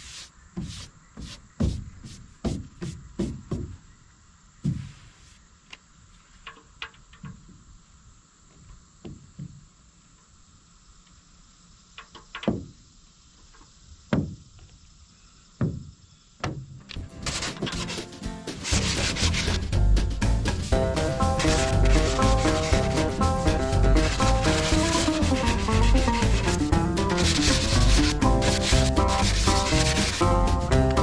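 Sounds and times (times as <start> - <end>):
hand sweeping over boat hull: 0.0 - 3.7, 4.6 - 5.4, 17.3 - 19.6, 20.5 - 30.7
sanding board knocking on hull: 0.0 - 3.8, 4.6 - 5.0, 14.1 - 14.4, 15.6 - 16.6, 17.3 - 31.0.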